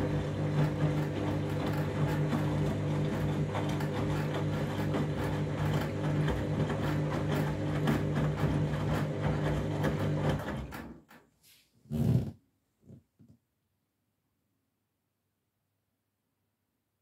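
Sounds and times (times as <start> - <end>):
washing machine motor hum: 0.0 - 11.2.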